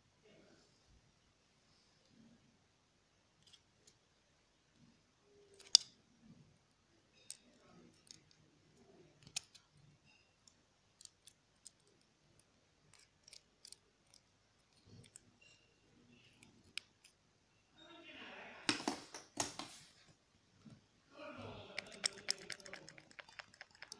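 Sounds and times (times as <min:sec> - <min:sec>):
plastic sequins clicking and tapping: 0:21.8 - 0:23.9.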